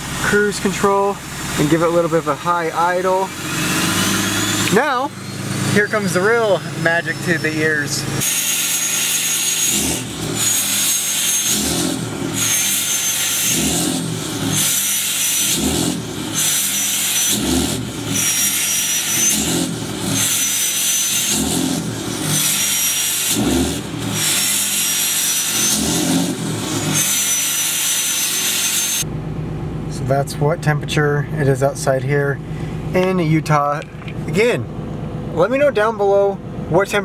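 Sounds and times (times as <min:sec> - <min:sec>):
diesel engine idling: 0:00.0 - 0:27.2, 0:28.2 - 0:37.0
high exhaust whistle: 0:03.1 - 0:29.1.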